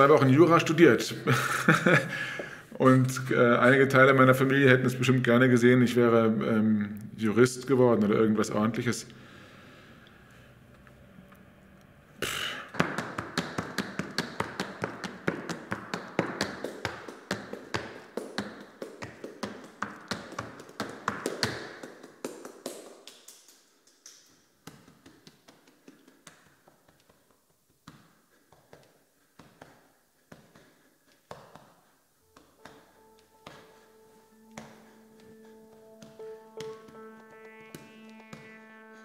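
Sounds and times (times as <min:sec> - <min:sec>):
tap shoes on floor: 0:12.8 - 0:23.2, 0:24.7 - 0:33.8.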